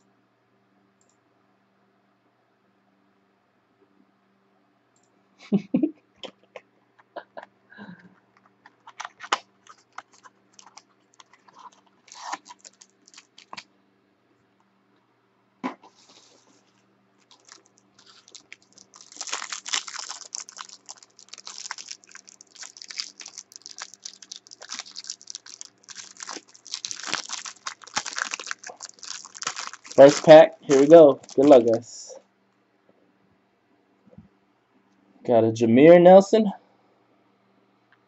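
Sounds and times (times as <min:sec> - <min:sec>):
wrapper tearing and crinkling: 0:08.9 - 0:13.6, 0:17.2 - 0:31.9.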